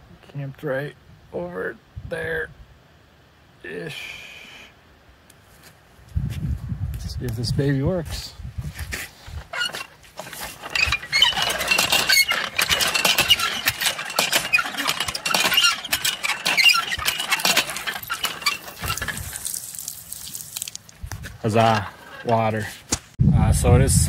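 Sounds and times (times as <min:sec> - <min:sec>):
hand water pump squealing and clanking: 0:09.5 - 0:20.9, 0:21.5 - 0:22.6.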